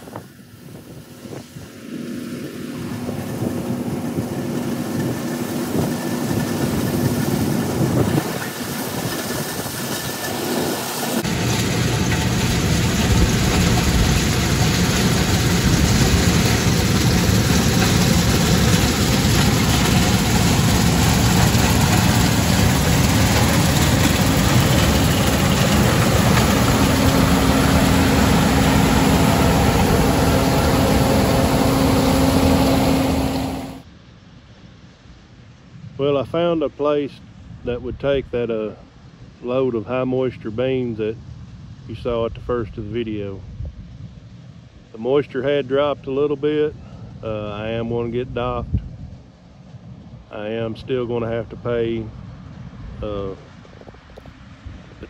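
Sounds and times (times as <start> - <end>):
combine harvester running: 0.0 - 33.8.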